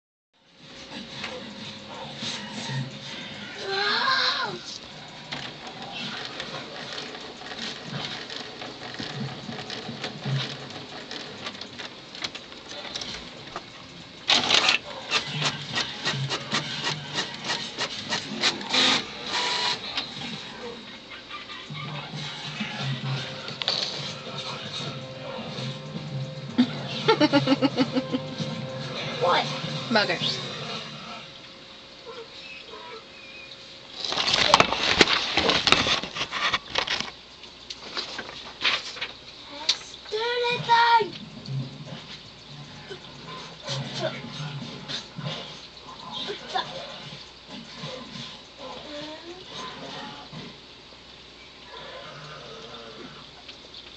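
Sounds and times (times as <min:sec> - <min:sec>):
rustling and clicking handling noise: 0:04.7 - 0:19.4, 0:33.9 - 0:40.1
printer whirring: 0:14.2 - 0:20.3
quick mechanical clicks: 0:14.3 - 0:19.8.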